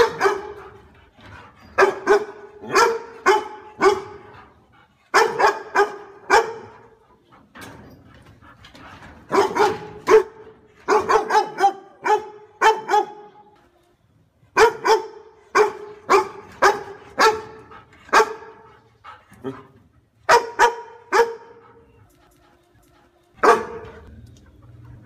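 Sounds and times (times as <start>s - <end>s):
dog barking: 0.0s - 0.8s, 1.8s - 4.3s, 5.1s - 7.0s, 9.3s - 13.4s, 14.6s - 18.7s, 20.3s - 21.8s, 23.4s - 24.1s.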